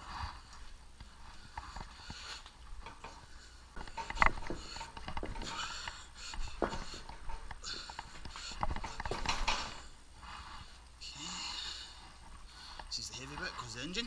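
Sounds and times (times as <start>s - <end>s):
clicks and knocks of handling: 0.5s - 10.0s.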